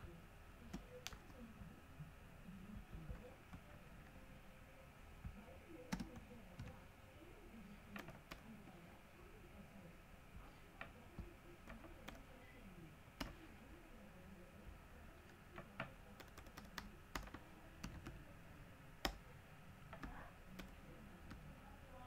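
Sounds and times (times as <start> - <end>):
computer keystrokes: 15.6 - 18.2.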